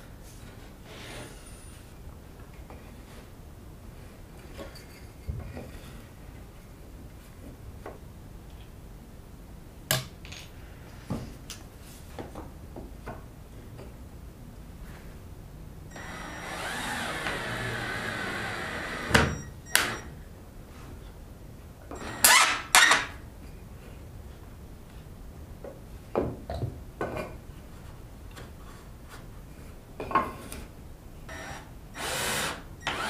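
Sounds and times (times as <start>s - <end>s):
small power tool whirring: 15.9s - 20.1s, 31.3s - 33.0s.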